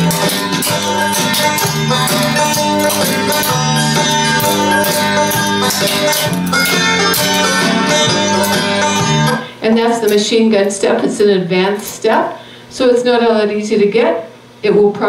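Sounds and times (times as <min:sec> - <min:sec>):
country guitar music: 0:00.0 - 0:11.1.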